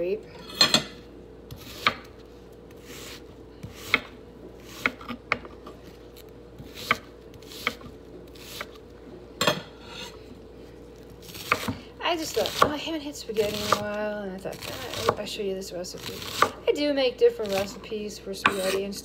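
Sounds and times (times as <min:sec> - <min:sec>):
onion scraping on board: 0:01.5 - 0:05.2, 0:06.6 - 0:08.8, 0:18.4 - 0:19.0.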